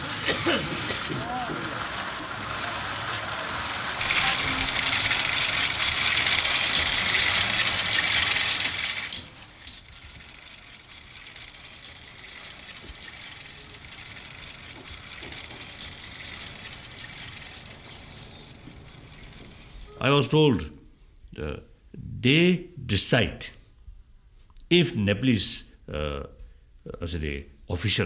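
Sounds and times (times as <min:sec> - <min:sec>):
spinning wheels whirring and rattling: 0:00.0 - 0:21.0.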